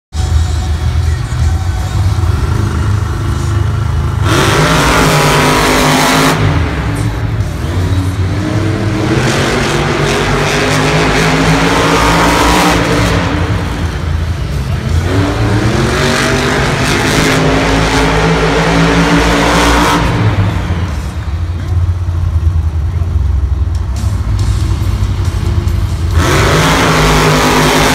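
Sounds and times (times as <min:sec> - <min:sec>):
truck engines revving hard: 0:00.1 - 0:27.9
constant low rumble: 0:12.9 - 0:15.8, 0:20.1 - 0:26.6.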